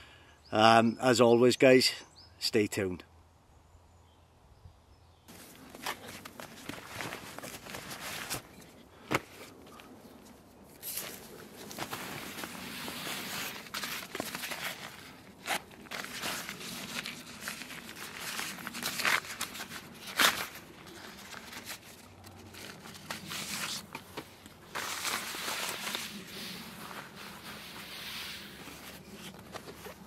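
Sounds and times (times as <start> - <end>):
rucksack fabric rustling: 5.3 - 30.0
scrapes on dry leaves: 10.7 - 30.0.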